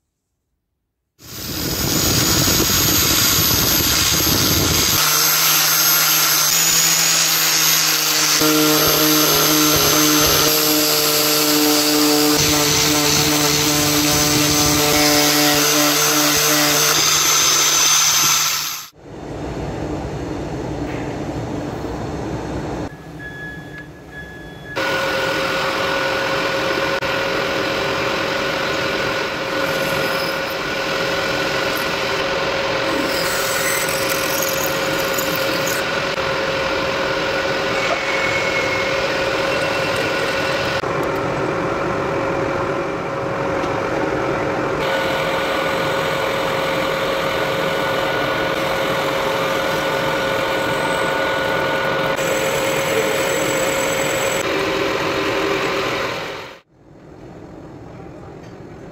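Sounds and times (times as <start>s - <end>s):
metal cutting noise: 1.2s - 19.0s, 24.8s - 40.9s, 44.8s - 56.6s
metal lathe whining: 1.2s - 19.0s, 24.8s - 40.8s, 44.8s - 56.6s.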